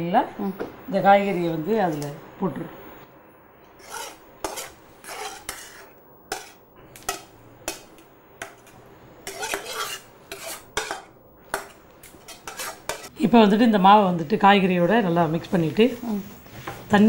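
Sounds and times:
spoon scraping a vessel: 3.8 - 7.2, 9.2 - 11.1, 12.2 - 13.1.

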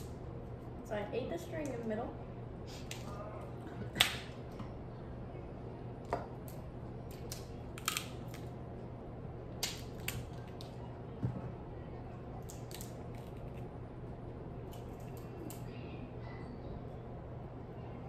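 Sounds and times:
steady low hum: 0.0 - 18.0
crab shells cracking: 6.5 - 8.5, 9.6 - 10.8, 12.4 - 13.6.

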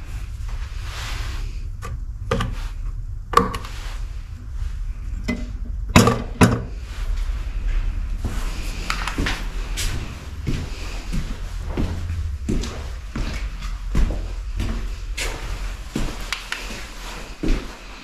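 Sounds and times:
steady low rumble: 0.0 - 18.0
footsteps on hard floor: 6.7 - 18.0.

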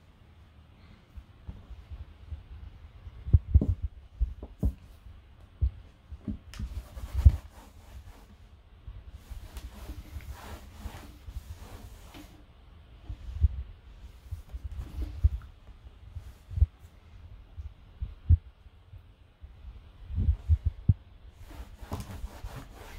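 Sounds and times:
cloth wiping wooden table: 6.7 - 8.5, 9.2 - 12.4, 21.4 - 22.9.

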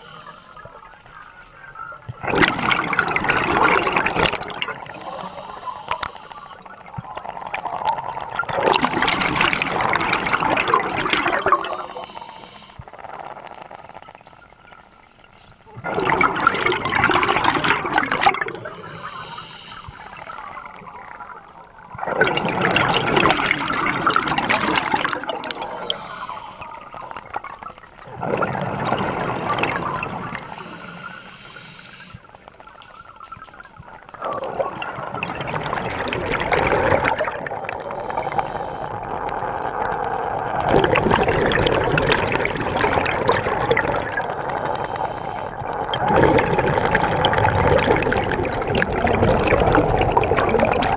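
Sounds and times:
diver breathing through regulator: 0.0 - 0.7, 4.8 - 6.8, 11.6 - 12.9, 18.6 - 20.8, 25.5 - 27.1, 29.9 - 32.3, 37.7 - 39.2, 43.9 - 46.0
bubbling exhalations: 2.0 - 14.3, 15.6 - 32.6, 33.8 - 50.9.

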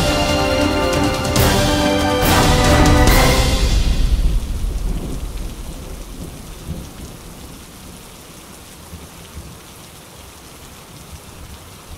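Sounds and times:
thunder rumbling: 0.0 - 9.0
rain hissing: 0.0 - 11.9.

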